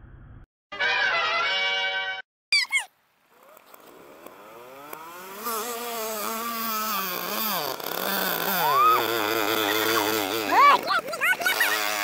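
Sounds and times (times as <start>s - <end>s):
mini bike engine running: 3.4s - 12.0s.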